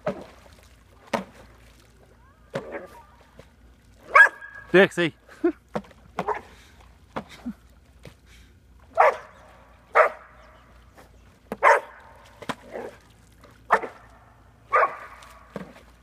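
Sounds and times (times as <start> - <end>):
dog barking: 4.1 - 4.5, 9.0 - 9.3, 9.9 - 10.3, 11.6 - 12.0, 13.7 - 14.0, 14.7 - 15.1.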